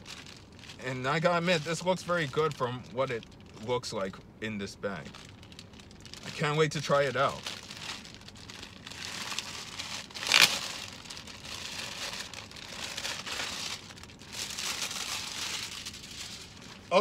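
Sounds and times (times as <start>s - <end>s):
plastic bag crinkling: 0.0s - 3.7s, 5.0s - 17.0s.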